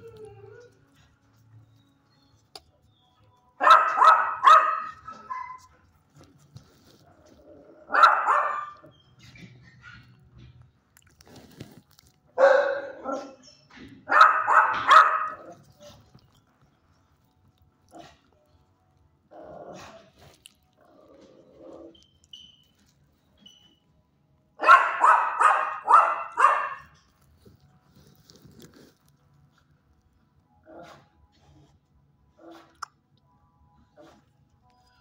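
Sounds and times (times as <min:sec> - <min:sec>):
dog barking: 0:03.6 - 0:05.7, 0:07.9 - 0:08.9, 0:12.4 - 0:13.5, 0:14.1 - 0:16.0, 0:24.6 - 0:27.0.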